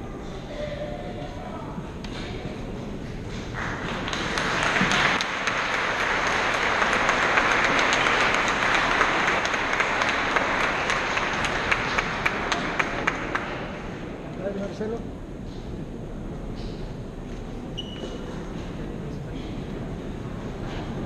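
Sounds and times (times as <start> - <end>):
crowd applauding: 3.3 - 14.1.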